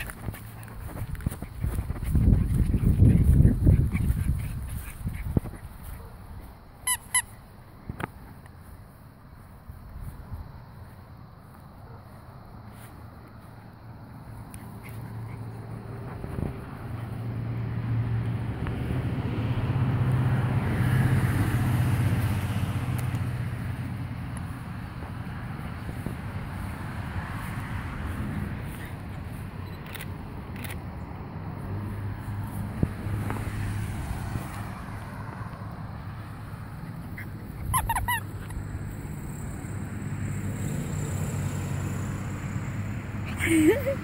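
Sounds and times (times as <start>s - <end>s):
vehicle engine humming: 0.0s - 44.0s
puppy yipping: 6.8s - 7.4s, 36.9s - 38.7s.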